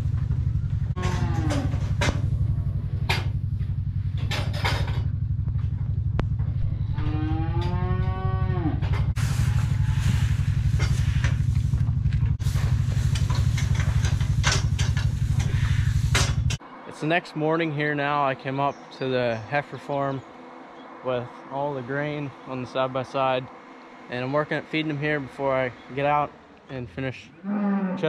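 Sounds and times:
tractor engine running: 0.0 - 16.6, 19.5 - 27.2
cow mooing: 1.0 - 3.0, 6.6 - 11.4, 27.4 - 28.0.

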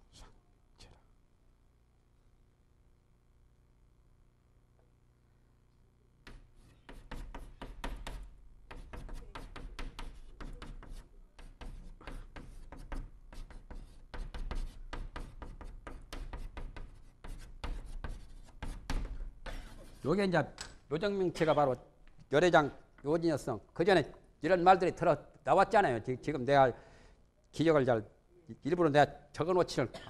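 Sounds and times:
chalk tapping and scraping: 6.2 - 20.2.

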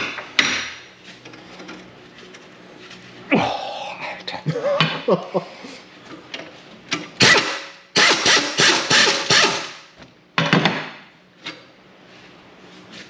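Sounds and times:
pneumatic impact wrench hammering: 7.2 - 10.0.

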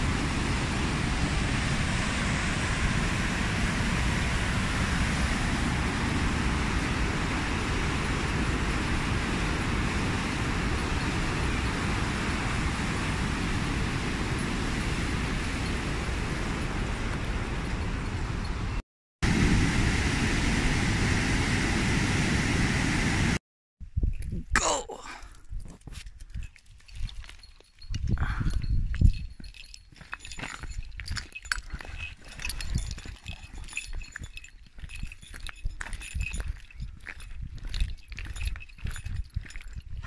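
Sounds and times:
roar of water through dam gates: 0.0 - 23.4.

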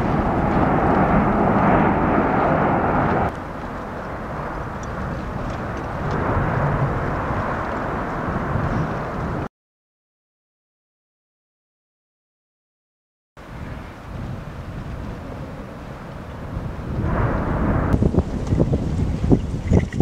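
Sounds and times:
volcano eruption roar: 0.0 - 9.5, 13.4 - 20.0
wind: 0.0 - 9.5, 13.4 - 20.0.

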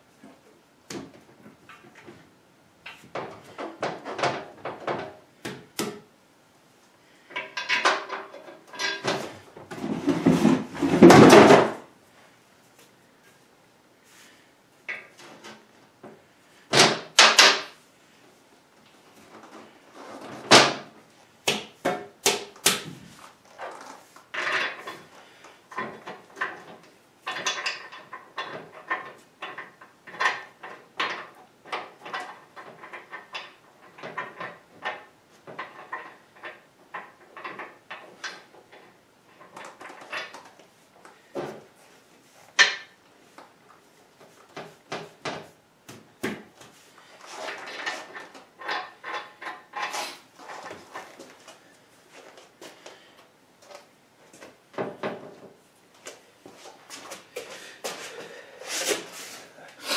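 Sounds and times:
metal parts and tools clinking: 7.3 - 9.2.

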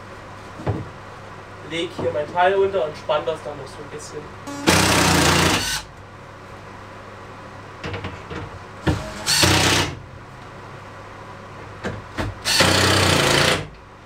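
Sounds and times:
drill driving screws into wood: 4.5 - 5.9, 8.9 - 10.0, 12.4 - 13.7.

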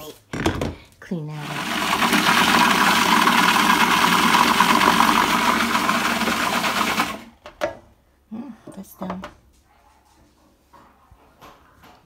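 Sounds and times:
blender running: 1.4 - 7.4.

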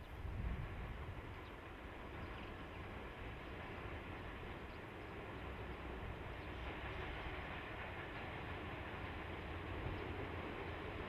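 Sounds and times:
distant train rumble: 0.0 - 11.0
outdoor background noise: 0.0 - 11.0.

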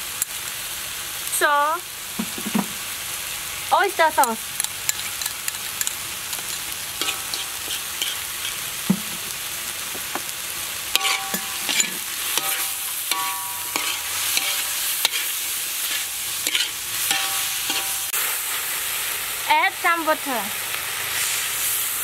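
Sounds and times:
food sizzling in a wok: 0.0 - 22.0
spatula scraping and knocking wok: 2.2 - 2.8, 4.6 - 9.3, 10.9 - 18.5.

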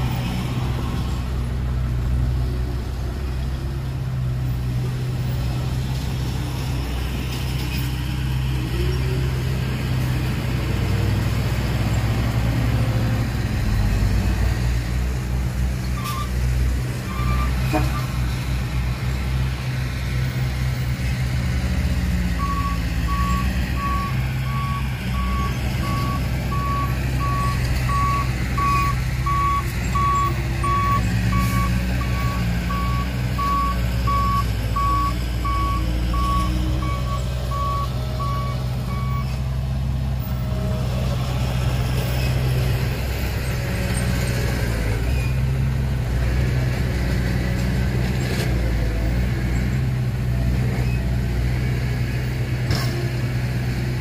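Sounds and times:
diesel engine running: 0.0 - 54.0
reversing alarm beeping: 22.4 - 39.3.

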